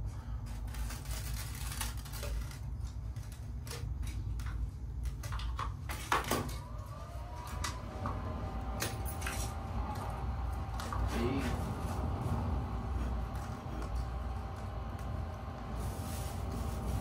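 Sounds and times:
low rumble: 6.6s - 17.0s.

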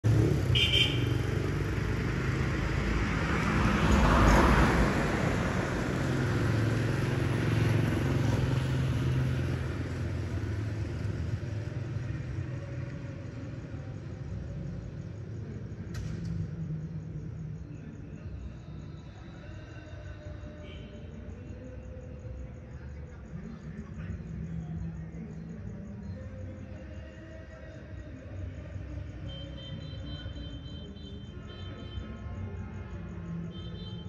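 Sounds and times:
vehicle engine humming: 0.0s - 17.2s.

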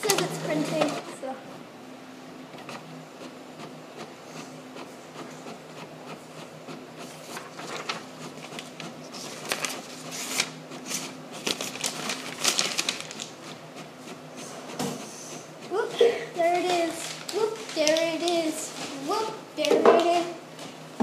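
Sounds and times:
printer mechanical clicks and rasps: 0.0s - 1.2s
printer humming: 0.0s - 21.0s.

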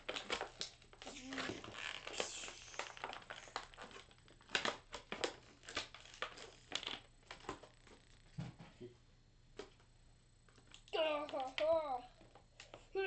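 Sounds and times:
plastic figures clicking and tapping: 10.6s - 12.8s.

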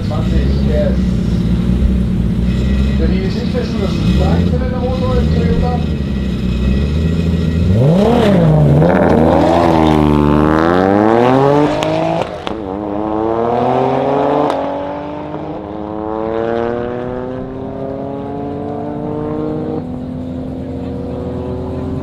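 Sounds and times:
car engines accelerating hard: 0.0s - 22.0s
exhaust cracks at upshifts: 0.0s - 22.0s.

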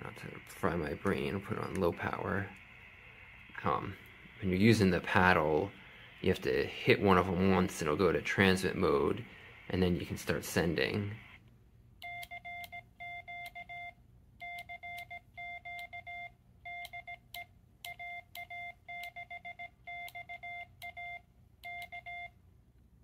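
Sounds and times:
morse code beeps: 12.0s - 22.4s.

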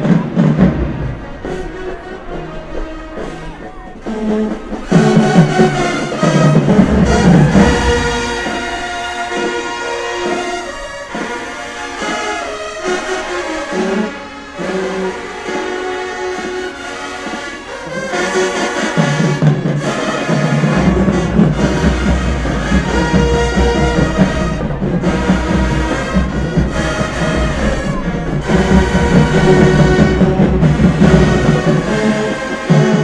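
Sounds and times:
low brass and heavy bass: 0.0s - 10.8s, 19.2s - 33.0s
marching band brass playing: 0.0s - 33.0s.

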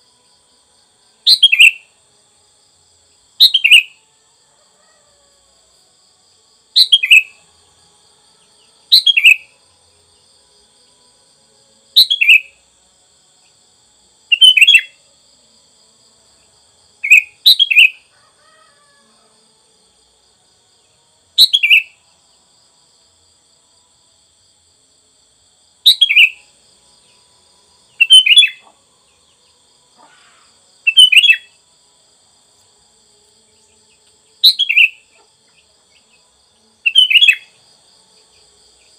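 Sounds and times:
faint high insect drone: 0.0s - 38.9s.

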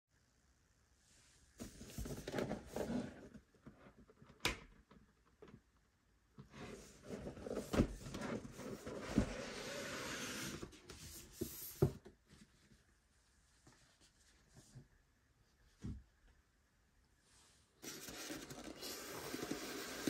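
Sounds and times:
cardboard sliding on cardboard: 6.5s - 12.0s.

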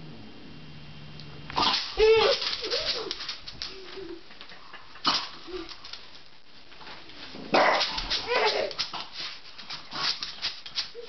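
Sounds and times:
dog whining woof: 2.0s - 4.2s
dog barking: 7.6s - 8.5s.

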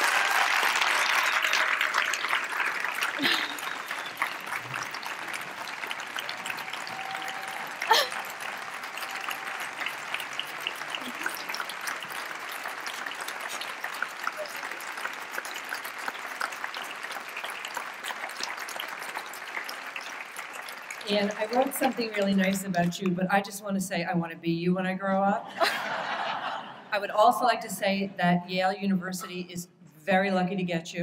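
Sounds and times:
audience applause: 0.0s - 22.9s.

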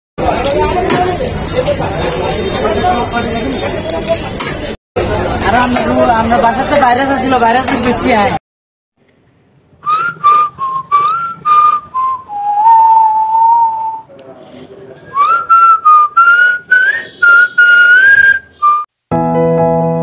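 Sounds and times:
person whistling a tune: 9.8s - 14.0s, 15.1s - 18.9s.

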